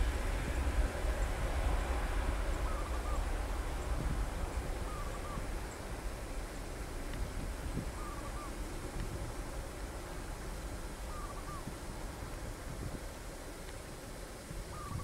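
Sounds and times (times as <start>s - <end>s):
jet engines rumbling: 0.0s - 15.0s
wavering bird call: 4.9s - 5.4s, 8.0s - 8.6s, 11.1s - 11.7s, 14.7s - 15.0s.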